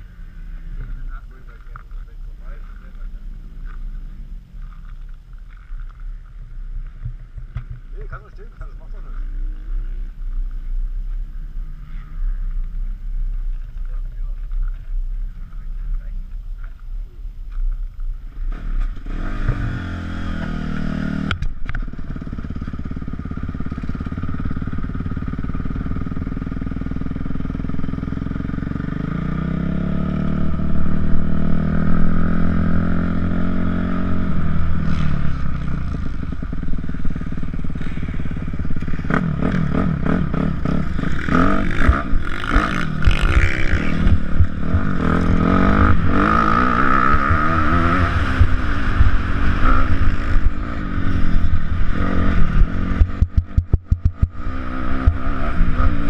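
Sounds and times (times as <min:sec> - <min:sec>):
dirt bike engine revving: 0:18.4 - 0:21.3, 0:21.9 - 0:56.0.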